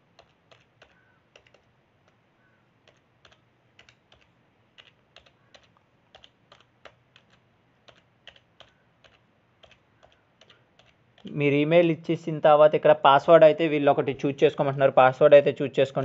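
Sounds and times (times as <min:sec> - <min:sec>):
keyboard typing: 0:00.0 - 0:02.2, 0:02.8 - 0:11.4.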